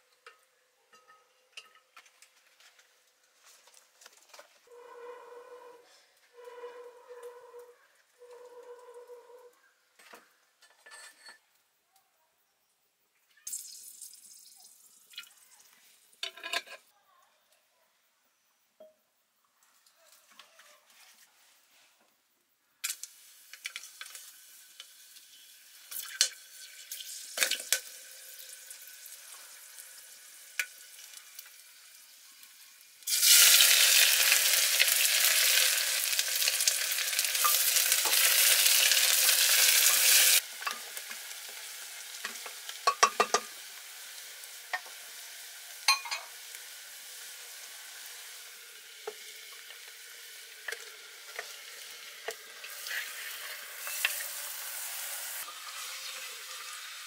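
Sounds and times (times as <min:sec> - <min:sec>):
onions sizzling loudly in oil: 0:22.8 - 0:57.0.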